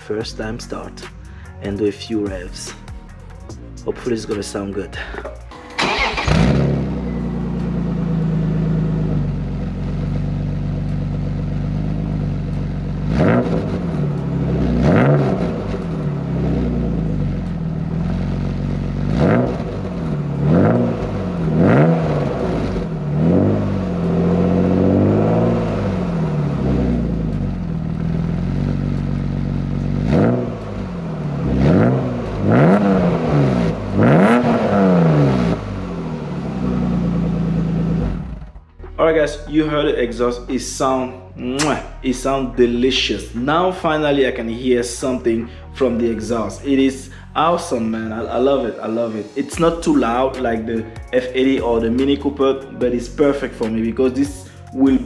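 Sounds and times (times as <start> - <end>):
car engine idling: 0.0 - 41.0
engine revving in throttle blips: 5.8 - 38.8.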